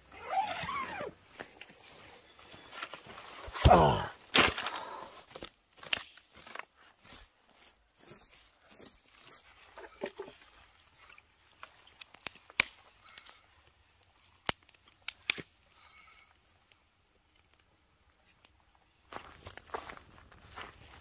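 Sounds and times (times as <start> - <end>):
dry sticks snapping: 3.5 - 6.6, 11.0 - 18.6.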